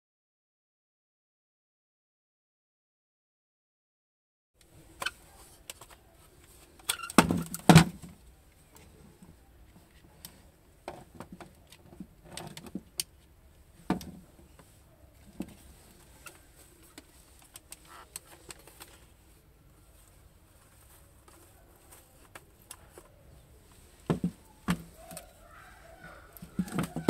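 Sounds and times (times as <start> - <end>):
plastic knocks and clicks: 13.9 - 14.2, 24.1 - 25.2, 26.4 - 27.0.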